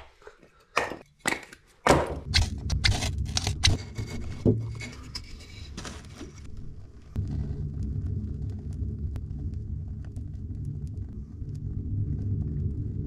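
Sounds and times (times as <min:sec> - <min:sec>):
wind rumble on microphone: 0:06.7 - 0:13.0.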